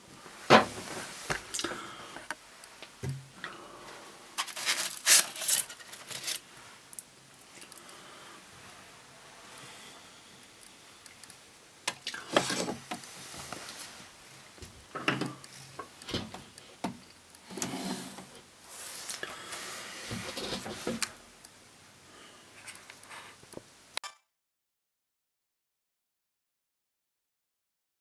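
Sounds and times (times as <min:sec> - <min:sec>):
rubbing and scraping: 0:17.5 - 0:21.0.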